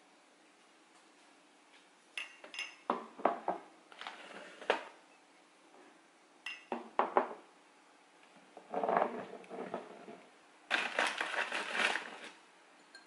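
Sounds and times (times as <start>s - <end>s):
glass and mug clinking: 2.2s - 2.9s, 12.8s - 13.0s
knocks on wooden countertop: 6.7s - 7.4s.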